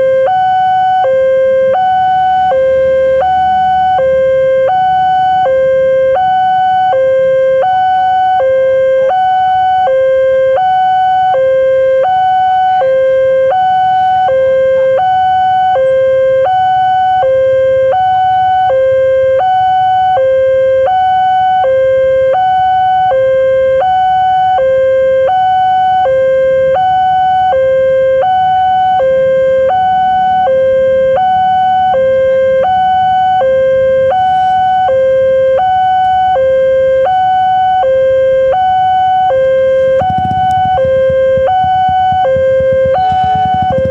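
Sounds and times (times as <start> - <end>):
level crossing two-tone alarm: 0.0 - 43.9.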